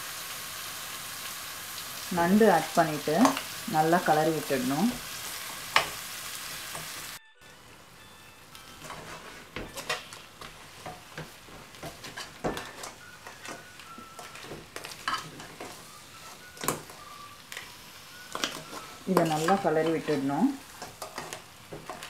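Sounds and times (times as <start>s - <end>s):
faint frying sizzle: 0.0s - 22.0s
spoon knocking on shells and pan: 8.8s - 15.8s, 18.3s - 22.0s.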